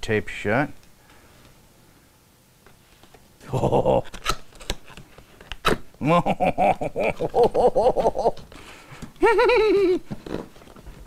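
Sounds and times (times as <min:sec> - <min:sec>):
man squealing: 0:03.4 - 0:04.1, 0:06.0 - 0:08.4, 0:09.2 - 0:10.1
man giggling: 0:03.4 - 0:04.2, 0:06.0 - 0:08.5, 0:09.2 - 0:10.2.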